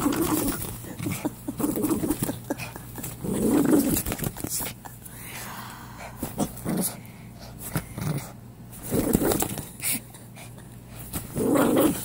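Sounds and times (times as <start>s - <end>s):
small dog growling: 0.0s - 4.4s, 6.2s - 7.0s, 7.6s - 10.0s, 11.2s - 12.0s
bedding rustling: 0.0s - 4.9s, 10.9s - 12.0s.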